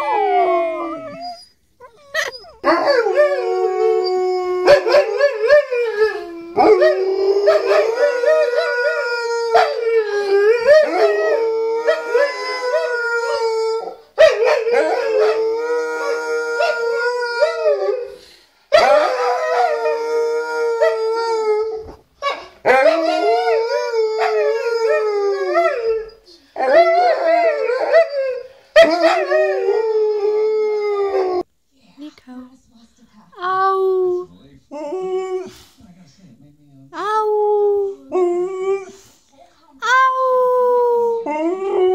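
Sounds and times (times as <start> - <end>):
dogs howling: 0.0 - 18.1, 18.7 - 31.4, 40.2 - 41.9.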